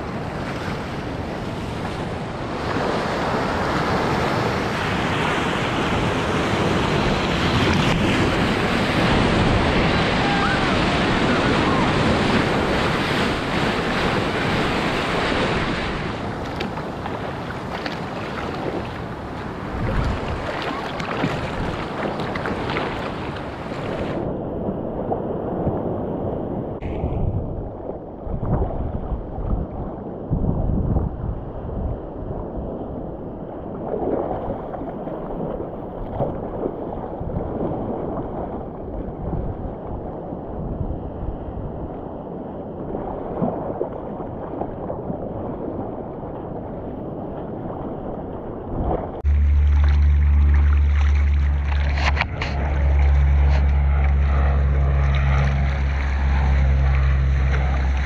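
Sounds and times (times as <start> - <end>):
wind buffeting microphone: 0.0 - 58.0
water sloshing and splashing: 0.6 - 24.3, 42.9 - 58.0.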